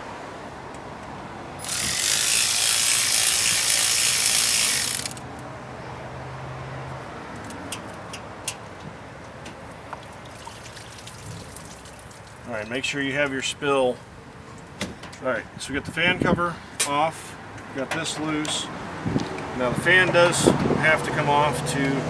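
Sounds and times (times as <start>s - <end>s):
ratchet wrench clicking: 1.6s - 5.2s.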